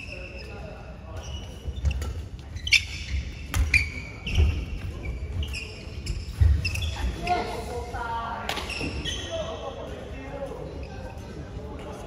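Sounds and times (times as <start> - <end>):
shoes squeaking on court: 0.0 - 7.5, 8.5 - 9.6.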